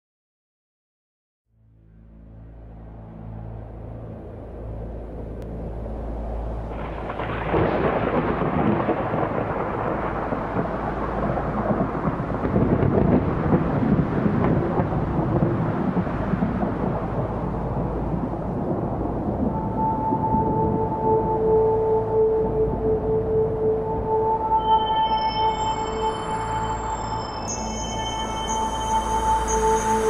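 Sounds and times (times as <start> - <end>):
low steady drone: 1.5 - 30.0
dense rain: 4.5 - 30.0
rolling thunder: 6.5 - 24.6.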